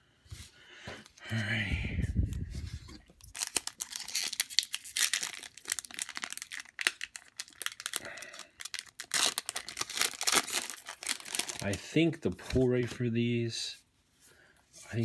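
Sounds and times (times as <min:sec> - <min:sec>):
foil pack tearing and crinkling: 0:03.3 - 0:11.8.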